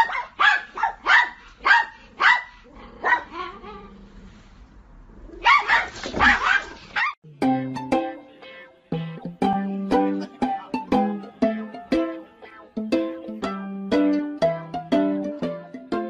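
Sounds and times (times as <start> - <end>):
dog barking: 0.0 - 3.6, 5.4 - 7.2
plucked-string music: 7.2 - 16.0.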